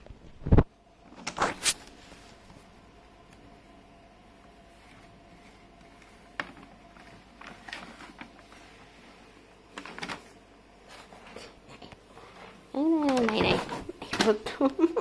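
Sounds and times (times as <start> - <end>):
paper bag rustling and scraping: 1.2 - 2.6, 4.6 - 14.0.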